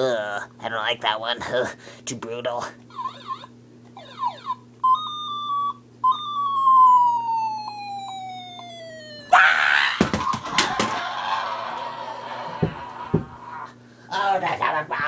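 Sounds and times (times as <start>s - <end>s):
toy ray gun beep: 2.9s - 9.4s
falling whistle: 3.0s - 10.0s.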